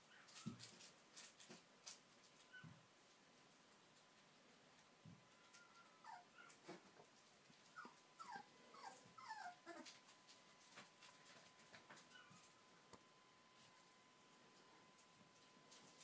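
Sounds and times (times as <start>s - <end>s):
puppy whimpering: 5.4s - 6.7s, 7.7s - 10.0s.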